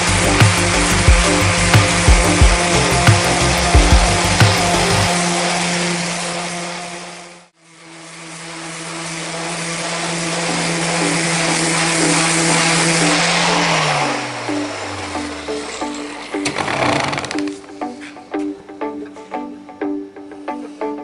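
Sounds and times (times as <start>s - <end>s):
orbital sander on wood: 0.0s - 17.8s.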